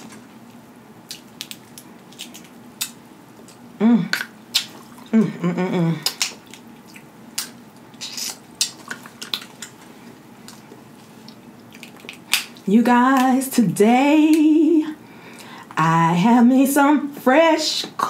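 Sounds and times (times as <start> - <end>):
crab shells cracking by hand: 1.0 - 4.8, 6.0 - 9.8, 11.6 - 12.6.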